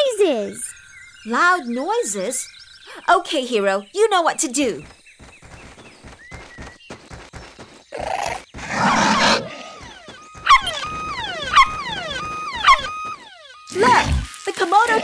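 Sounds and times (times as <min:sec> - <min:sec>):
cartoon puppy barking: 0:11.4 - 0:11.8, 0:12.6 - 0:12.9.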